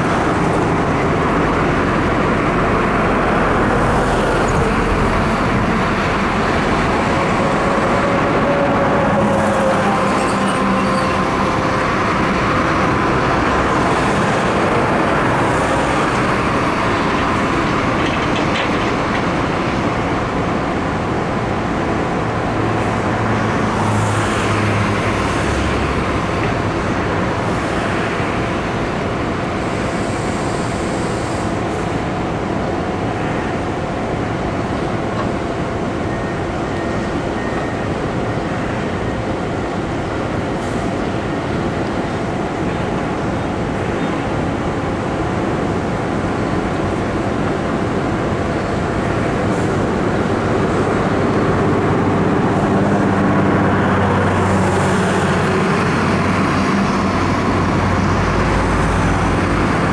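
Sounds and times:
cars and trucks passing: 0:00.0 - 0:59.9.

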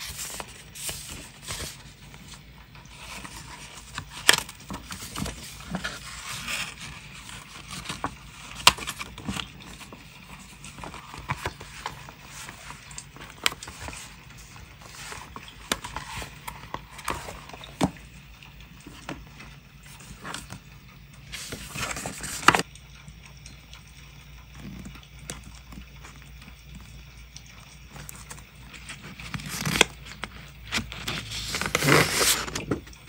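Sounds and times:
paper rustling and sliding: 0:00.0 - 0:18.1, 0:18.8 - 0:20.6, 0:21.3 - 0:22.6, 0:28.1 - 0:32.9.

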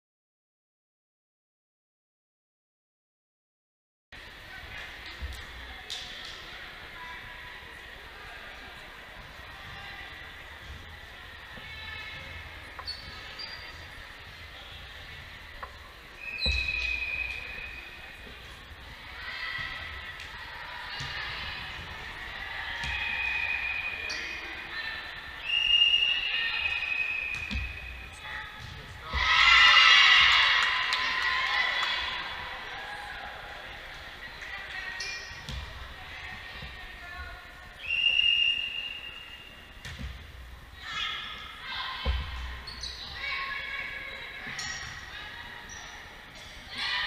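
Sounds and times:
referee's whistle: 0:16.2 - 0:18.0, 0:22.9 - 0:24.4, 0:25.4 - 0:28.0, 0:37.8 - 0:39.7.

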